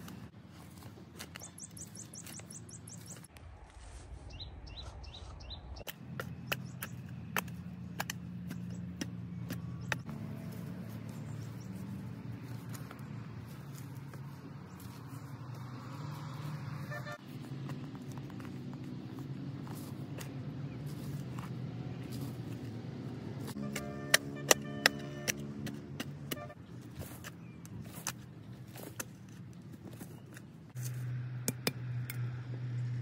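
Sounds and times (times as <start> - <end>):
birds chirping: 0.0 - 3.3, 4.3 - 17.2.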